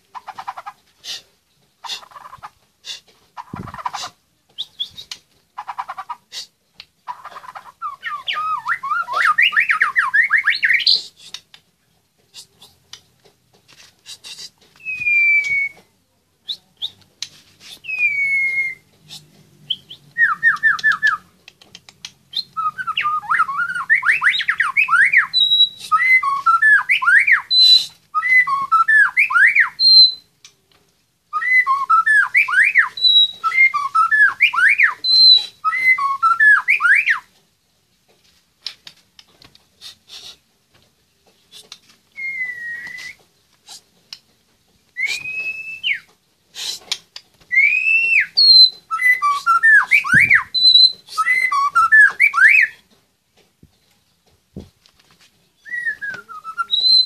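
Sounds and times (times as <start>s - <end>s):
bird singing: 7.1s - 11.1s, 19.6s - 21.3s, 22.3s - 30.3s, 31.3s - 37.3s, 42.1s - 43.2s, 45.0s - 46.1s, 47.5s - 52.8s, 55.5s - 57.0s.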